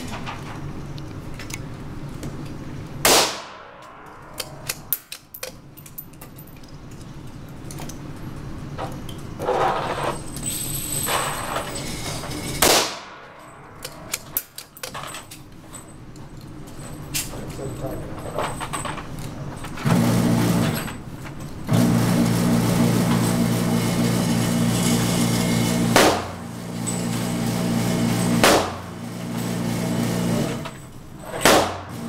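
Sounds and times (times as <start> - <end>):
rifle shots indoors: 3.0 - 5.5, 12.6 - 14.5, 25.7 - 26.4, 27.4 - 29.0, 31.2 - 32.0
small metallic clicks and knocks: 3.8 - 9.3.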